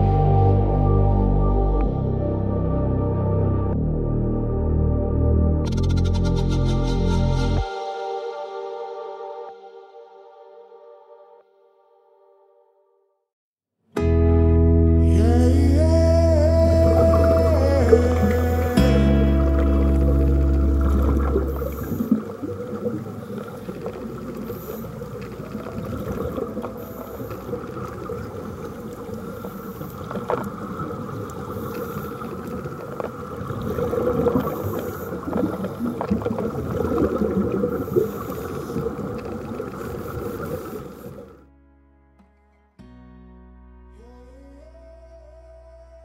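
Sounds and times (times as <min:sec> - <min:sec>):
bubbles rushing underwater: 0:16.6 - 0:41.3
diver breathing through regulator: 0:21.4 - 0:22.4, 0:23.1 - 0:25.4, 0:26.6 - 0:27.8, 0:31.5 - 0:32.5, 0:33.7 - 0:36.0, 0:37.7 - 0:41.4.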